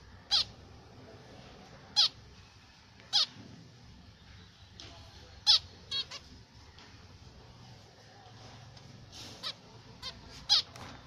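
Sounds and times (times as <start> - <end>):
finch calls: 0.1 - 0.6, 1.9 - 2.2, 3.0 - 3.4, 5.4 - 6.5, 9.3 - 11.0.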